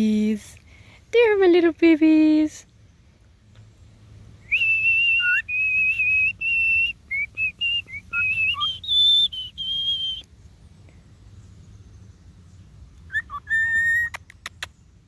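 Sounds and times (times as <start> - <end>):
cockatiel whistling: 4.5 - 10.2, 13.1 - 14.2.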